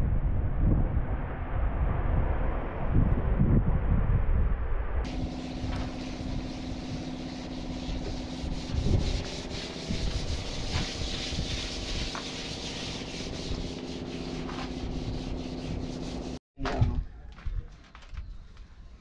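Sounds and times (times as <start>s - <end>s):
hand scraping sheet metal: 5.1s - 16.4s
low machine hum: 5.1s - 16.4s.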